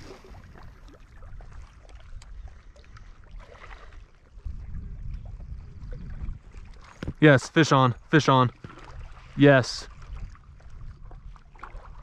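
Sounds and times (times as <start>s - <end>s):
light ticks and splashes: 0.0s - 4.4s, 5.0s - 12.0s
small waves lapping: 0.0s - 12.0s
wind rumbling on microphone: 0.0s - 12.0s.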